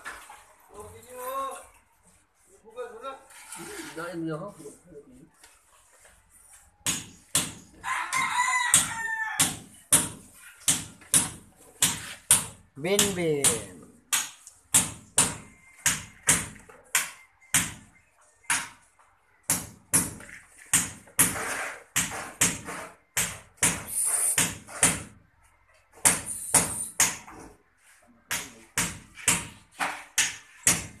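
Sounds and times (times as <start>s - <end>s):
scraping on concrete: 2.2s - 6.8s, 20.2s - 23.1s
sharp knocks on concrete: 6.8s - 25.2s, 26.0s - 27.6s, 28.3s - 31.0s.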